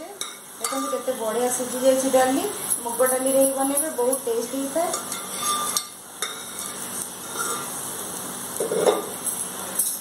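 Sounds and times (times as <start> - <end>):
food sizzling in a pan: 0.0 - 10.0
ladle stirring: 4.8 - 7.8.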